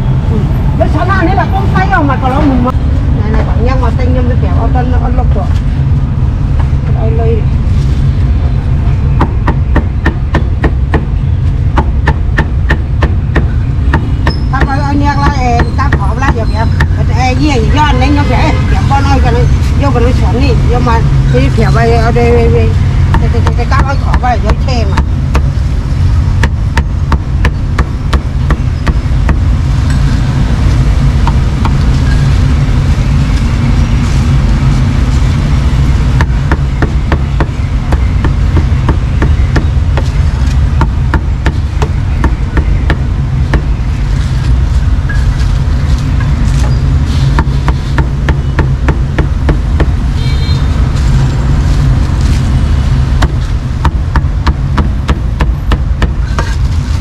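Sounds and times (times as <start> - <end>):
low rumble: 0.0 - 57.0
cleaver chopping meat: 11.8 - 17.0.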